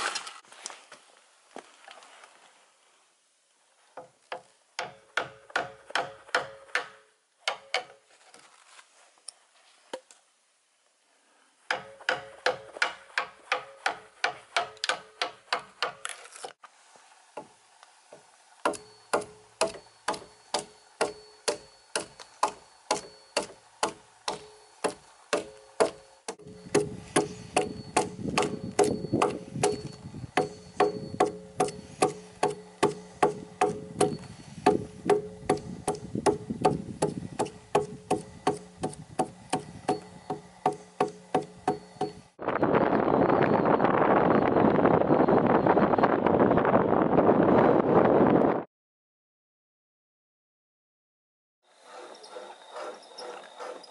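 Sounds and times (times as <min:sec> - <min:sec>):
hammer striking steel chisel: 0:04.0 - 0:08.0, 0:11.7 - 0:16.1, 0:18.6 - 0:42.4.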